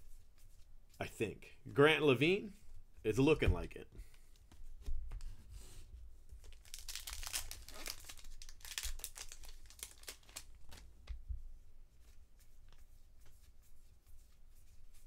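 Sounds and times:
wrapper tearing and crinkling: 0:06.4 - 0:10.9.

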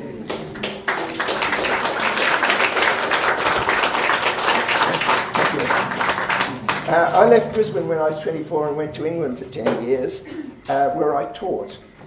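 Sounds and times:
audience applauding: 0:00.3 - 0:07.4.

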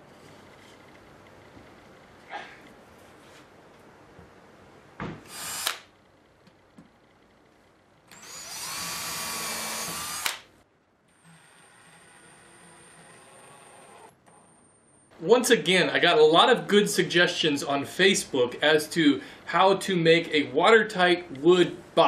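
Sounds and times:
cordless drill driving screws: 0:05.3 - 0:05.8, 0:08.1 - 0:10.4.

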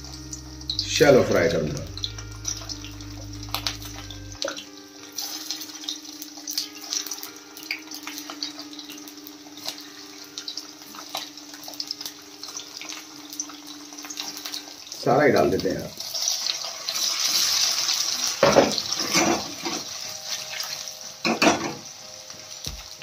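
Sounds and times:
food sizzling in oil: 0:00.0 - 0:23.0.

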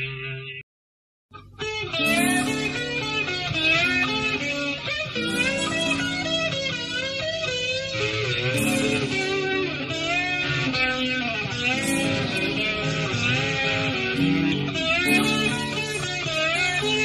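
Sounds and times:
bass: 0:01.3 - 0:17.0
electric guitar lead: 0:01.4 - 0:17.0
rhythm part: 0:05.2 - 0:07.8, 0:08.4 - 0:10.3, 0:11.7 - 0:17.0.

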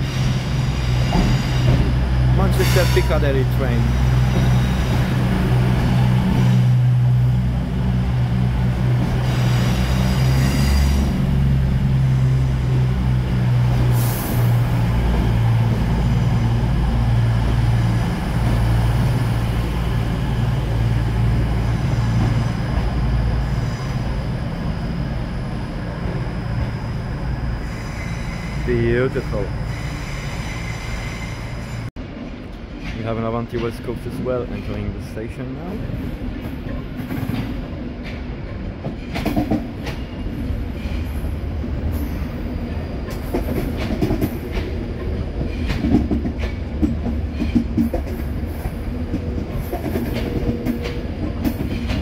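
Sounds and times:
diesel train engines humming: 0:00.0 - 0:32.8.

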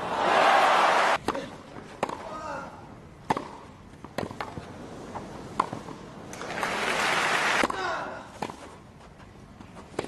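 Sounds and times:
crowd applause: 0:00.1 - 0:01.2, 0:06.4 - 0:07.6
tennis ball struck: 0:02.0 - 0:02.2, 0:03.2 - 0:04.6.

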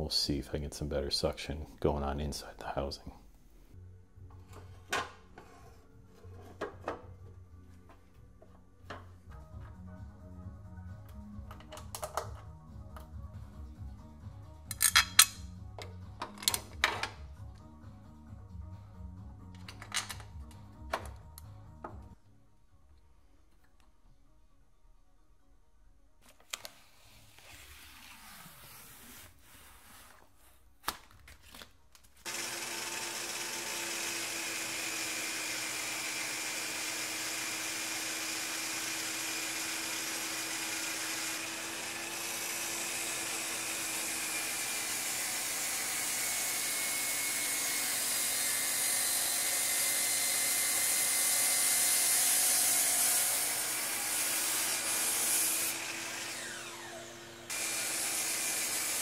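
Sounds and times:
shop vacuum running: 0:32.3 - 0:59.0.

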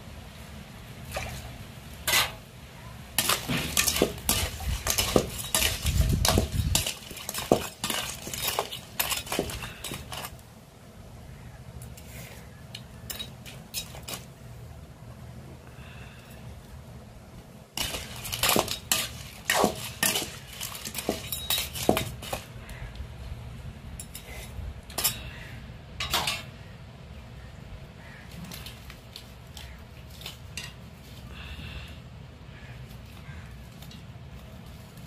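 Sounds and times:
metal ladle scraping metal pan: 0:02.0 - 0:02.4, 0:03.2 - 0:10.4, 0:17.8 - 0:22.4.

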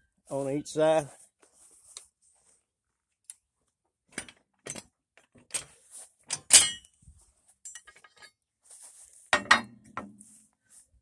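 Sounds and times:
metal pins clinking and clanking: 0:04.1 - 0:06.9, 0:07.6 - 0:08.3, 0:09.4 - 0:10.1.

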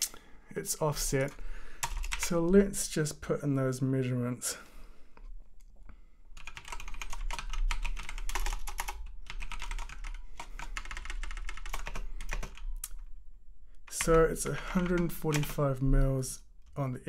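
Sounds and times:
typing on keyboard: 0:01.8 - 0:02.3, 0:06.4 - 0:13.0, 0:13.9 - 0:15.6.

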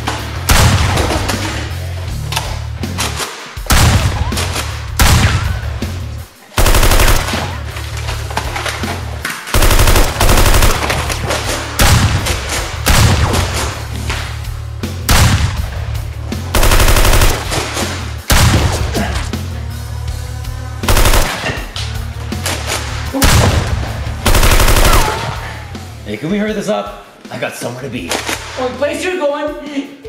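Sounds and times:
action music with heavy bass: 0:00.0 - 0:07.6, 0:09.5 - 0:26.1
automatic gunfire: 0:06.6 - 0:07.6, 0:09.5 - 0:11.2, 0:16.6 - 0:17.7, 0:20.9 - 0:21.5, 0:24.3 - 0:25.4.

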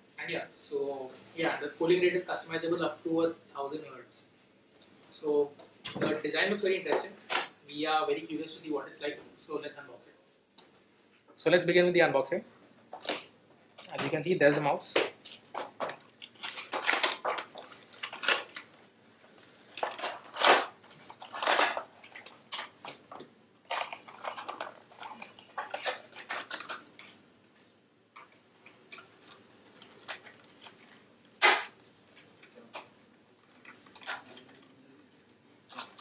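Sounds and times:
packaging rustling and crinkling: 0:15.1 - 0:27.1, 0:28.7 - 0:34.7.

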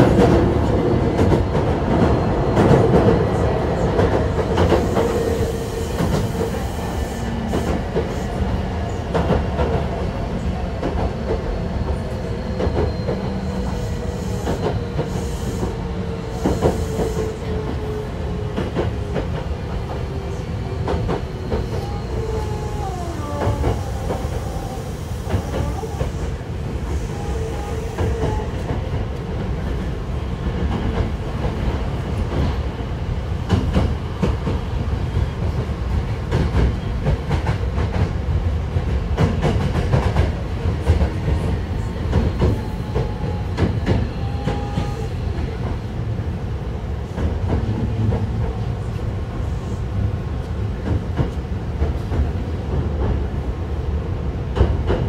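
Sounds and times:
train running rumble: 0:00.0 - 0:55.0.

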